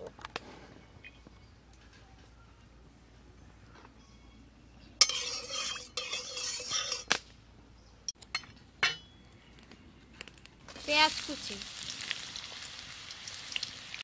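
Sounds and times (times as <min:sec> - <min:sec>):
hot oil hissing and spluttering: 0:10.7 - 0:14.0.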